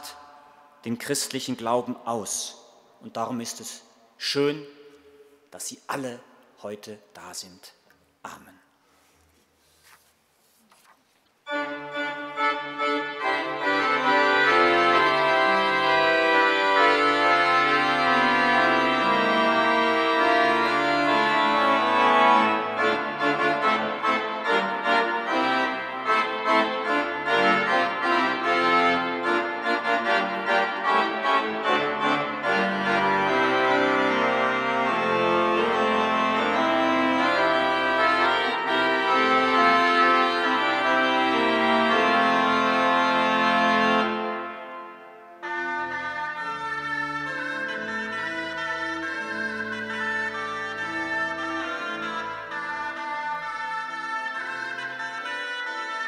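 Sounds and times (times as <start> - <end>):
church pipe organ playing: 11.4 - 56.0.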